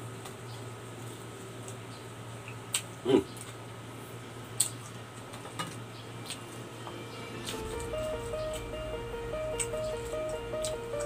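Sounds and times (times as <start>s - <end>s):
steady low hum: 3.6s - 11.0s.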